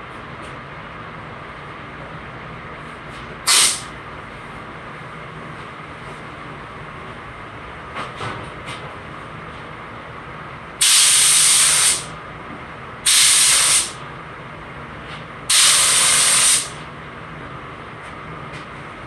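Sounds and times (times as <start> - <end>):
spray gun hissing: 3.5 - 3.9, 10.8 - 12.1, 13.0 - 14.0, 15.5 - 16.8.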